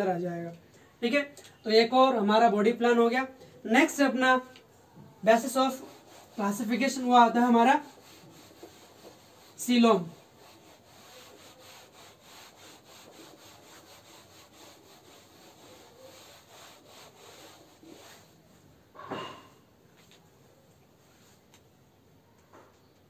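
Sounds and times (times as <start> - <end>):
person speaking: 0.0 - 4.6, 5.2 - 8.5, 9.4 - 10.6
duster rubbing on whiteboard: 5.2 - 18.6.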